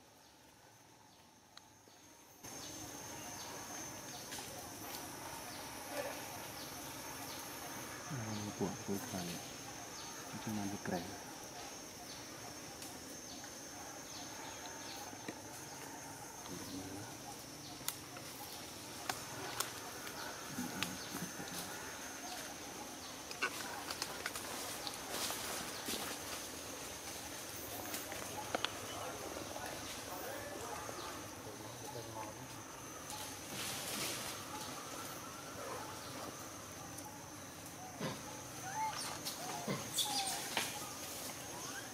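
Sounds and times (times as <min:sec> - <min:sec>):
high-pitched insect drone: 0:02.3 - 0:15.2
monkeys chirping and calling: 0:37.9 - 0:40.8.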